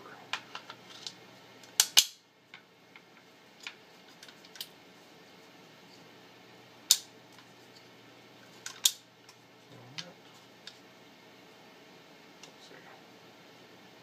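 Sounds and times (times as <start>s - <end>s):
gun handling clicks: 0.4s - 2.2s, 6.9s - 7.1s, 8.6s - 9.0s.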